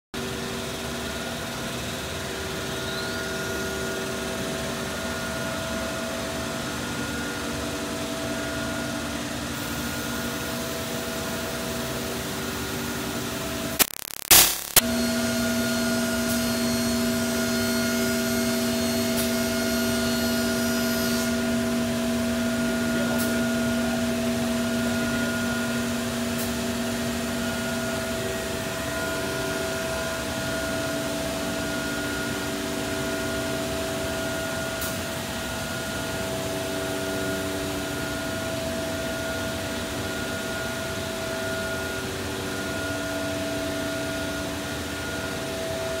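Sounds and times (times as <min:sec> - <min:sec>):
router machine whirring hum: 0:14.7 - 0:46.0.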